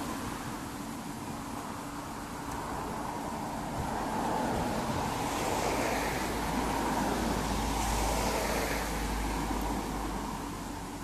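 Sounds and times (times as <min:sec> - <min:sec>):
wind on microphone: 0:02.6 - 0:10.3.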